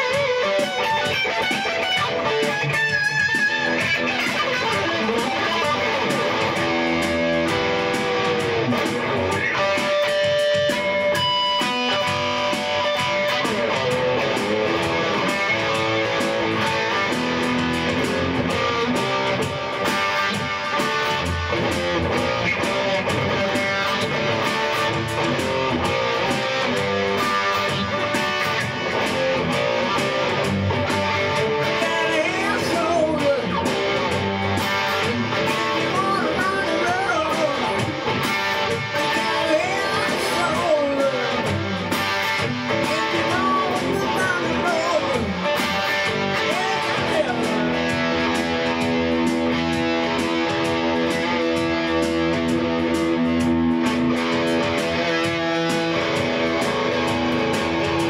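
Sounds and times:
instrumental rock guitar music: 0.0s - 58.0s.

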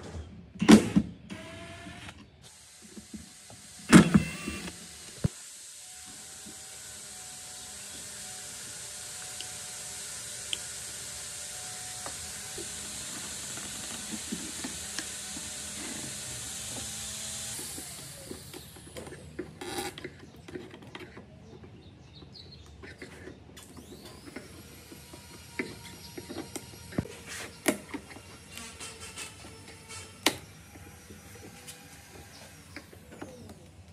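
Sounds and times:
workshop room tone hiss: 2.5s - 18.3s
hand scraper scraping wood: 11.6s - 21.2s, 22.9s - 33.4s.

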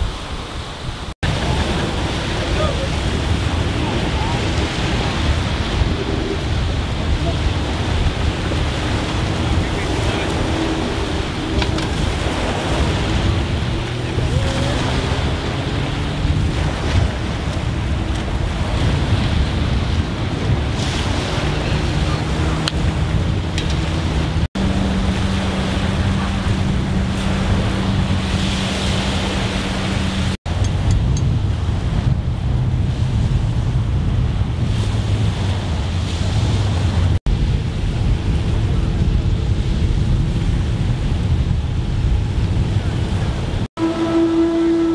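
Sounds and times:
small waves breaking: 0.0s - 30.4s
boat motor hum: 0.0s - 44.9s
wind buffeting microphone: 0.0s - 44.9s
steady low rumble: 0.9s - 43.9s.

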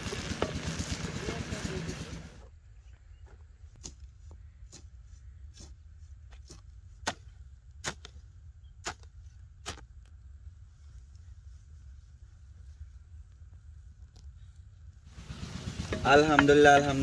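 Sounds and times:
hoe chopping dry soil: 0.0s - 2.2s, 3.7s - 10.1s
low steady rumble: 5.2s - 17.0s.

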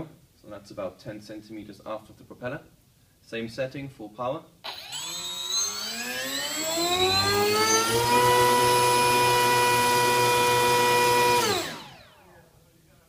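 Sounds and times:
electric motor whine: 4.7s - 12.3s.

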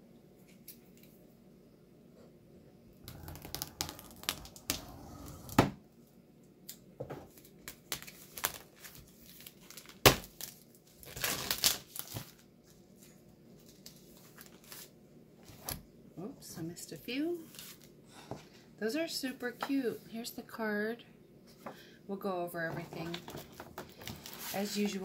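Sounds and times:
cellophane crinkling and tearing: 3.0s - 5.6s, 7.3s - 15.0s, 23.0s - 25.0s.

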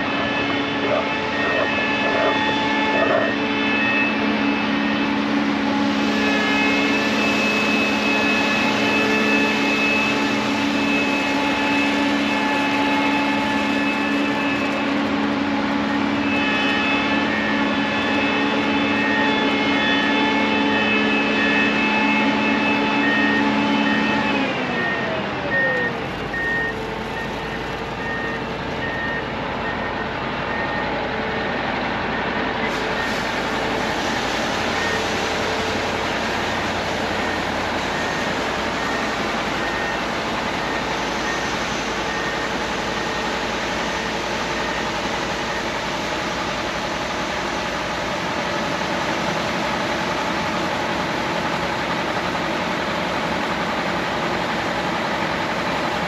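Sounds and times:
combine harvester running: 0.0s - 56.0s
short electronic beeps: 24.8s - 30.9s.

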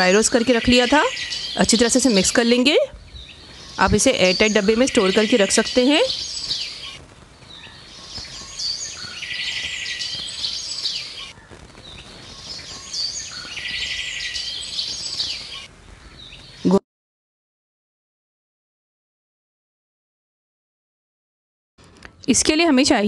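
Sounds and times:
birds chirping and twittering: 0.0s - 16.8s.

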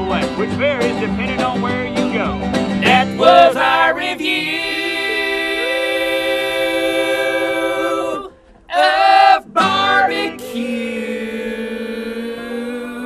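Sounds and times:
men singing in harmony: 2.8s - 13.0s.

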